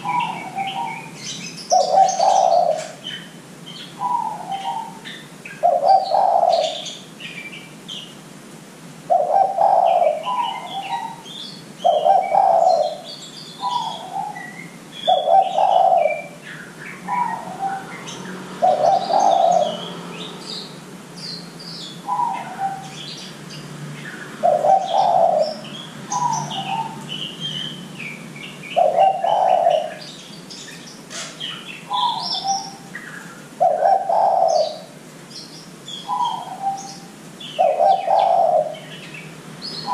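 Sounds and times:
dove cooing: 0:00.0 - 0:03.3, 0:03.9 - 0:07.0, 0:09.1 - 0:20.0, 0:22.0 - 0:23.0, 0:24.4 - 0:27.8, 0:28.6 - 0:30.1, 0:31.1 - 0:35.0, 0:36.0 - 0:39.0
small birds chirping: 0:00.0 - 0:08.4, 0:09.0 - 0:39.9.

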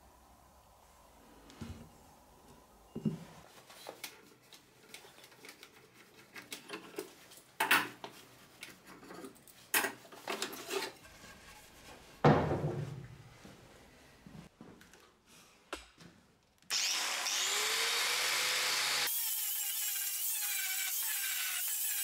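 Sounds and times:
tools and wood knocking on workbench: 0:02.9 - 0:03.3, 0:12.2 - 0:13.0
heavy wooden thump: 0:12.2 - 0:13.0.

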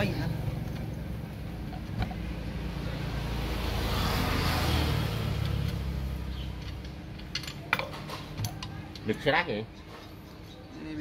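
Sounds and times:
vehicle passing by: 0:02.2 - 0:07.0.

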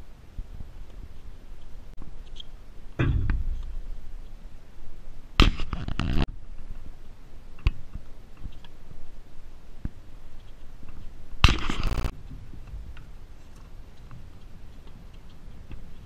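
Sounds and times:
rushing noise on microphone: 0:05.4 - 0:06.3, 0:11.4 - 0:12.6.

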